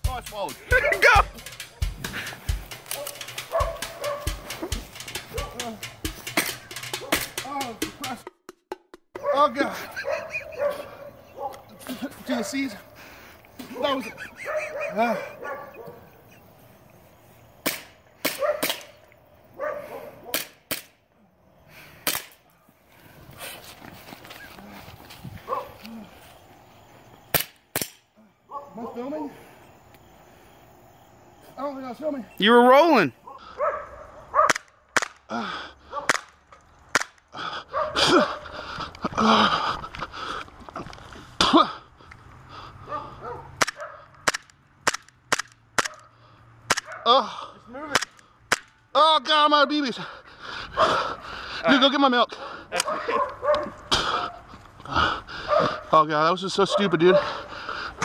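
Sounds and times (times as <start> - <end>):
airsoft pistol shots: 17.6 - 19.0, 20.3 - 21.0, 27.3 - 28.0.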